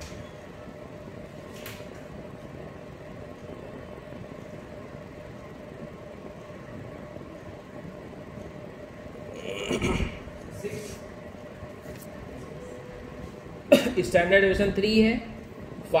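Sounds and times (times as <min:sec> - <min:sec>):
background hum: 0:00.0 - 0:16.0.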